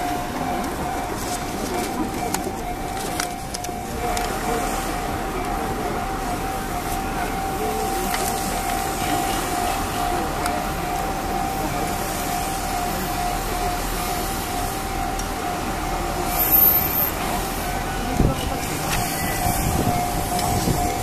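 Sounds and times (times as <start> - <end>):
level crossing bell ringing: 0.0 - 21.0
train rumbling on tracks: 0.0 - 21.0.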